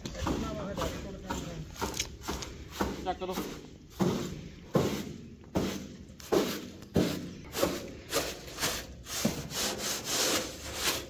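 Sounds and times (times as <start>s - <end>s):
scrubbing on sheet metal: 2.2s - 11.0s.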